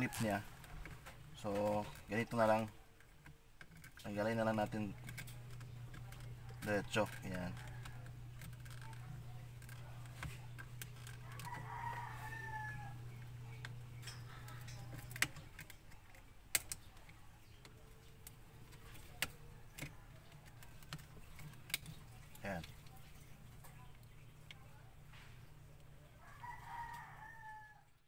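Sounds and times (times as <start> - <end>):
faint rooster crowing: 0.0 - 0.8, 6.7 - 9.2, 11.0 - 15.0, 25.9 - 28.0
low steady hum: 0.0 - 28.0.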